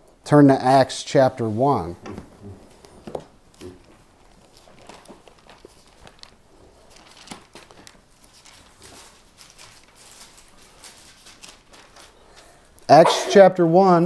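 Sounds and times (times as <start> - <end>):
pages rustling and flicking: 2.7 - 12.6.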